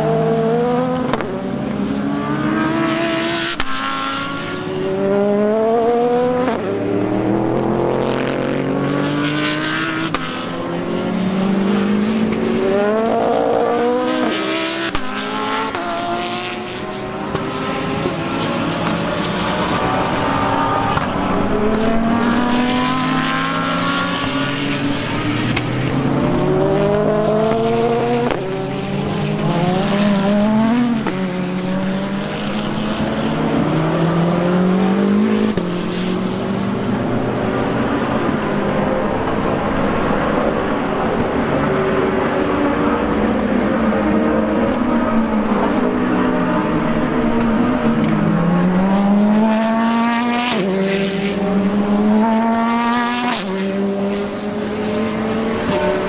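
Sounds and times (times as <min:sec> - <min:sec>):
race car engines revving: 0:00.0 - 0:56.0.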